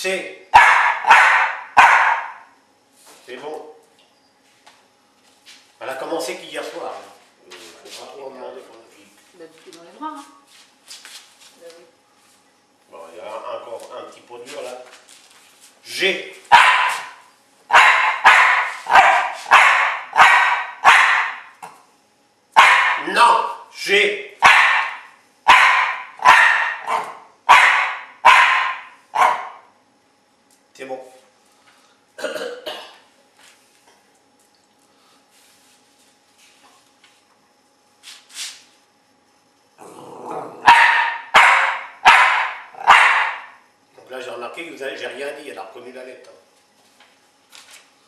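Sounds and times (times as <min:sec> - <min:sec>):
small dog barking: 0:00.5 - 0:02.5, 0:16.5 - 0:21.5, 0:22.6 - 0:23.1, 0:24.4 - 0:29.7, 0:40.6 - 0:43.6
dog grumbling: 0:39.8 - 0:40.7.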